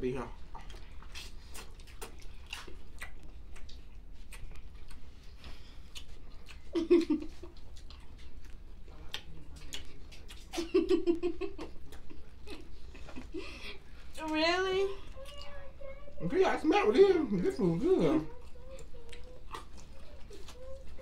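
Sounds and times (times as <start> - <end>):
chewing: 0.4 - 10.6, 15.1 - 15.7, 18.2 - 21.0.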